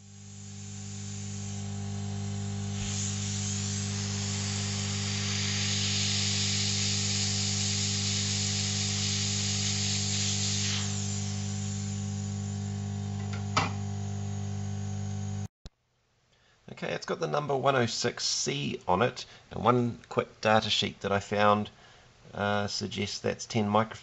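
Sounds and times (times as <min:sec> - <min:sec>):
hot air blower hissing: 0:00.0 - 0:15.5
steady hum: 0:00.0 - 0:15.5.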